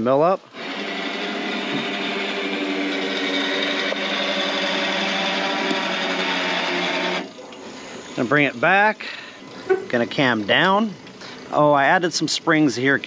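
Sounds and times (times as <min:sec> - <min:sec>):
electric motor whine: 0:00.5 - 0:08.3.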